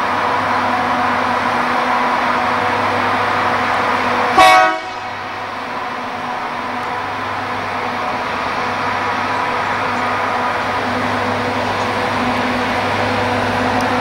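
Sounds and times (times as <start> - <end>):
train running: 0.0 - 14.0
train horn toot: 4.3 - 5.1.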